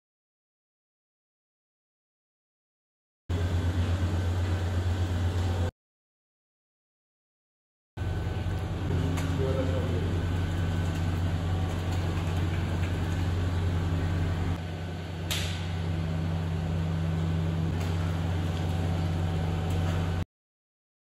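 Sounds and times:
motor electric hum: 3.3 - 5.7, 8.0 - 20.2.

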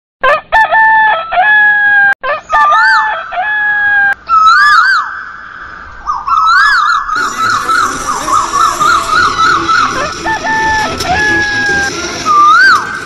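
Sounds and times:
rooster crowing: 0.2 - 4.7, 7.2 - 13.0.

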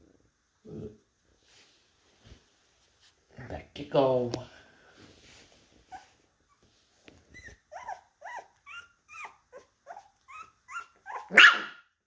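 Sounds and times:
puppies whining: 5.8 - 11.4
puppy yelp: 7.3 - 11.9.

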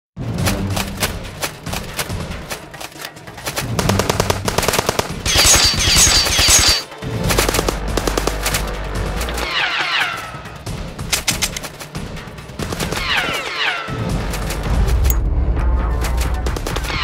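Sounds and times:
cartoon machine-gun fire: 3.8 - 6.8.

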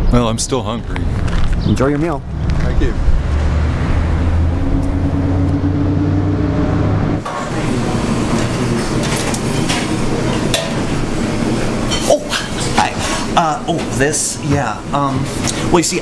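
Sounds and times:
restaurant room noise: 0.0 - 16.0
low rumble with hum: 0.6 - 7.3.

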